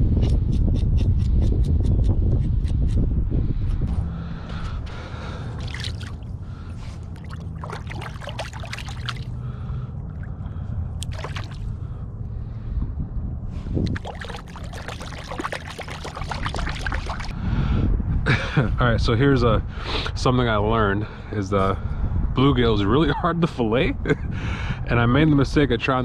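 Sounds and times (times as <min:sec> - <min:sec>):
low rumble: 0:03.0 - 0:14.9
water splashing and trickling: 0:05.4 - 0:11.9, 0:13.8 - 0:17.4.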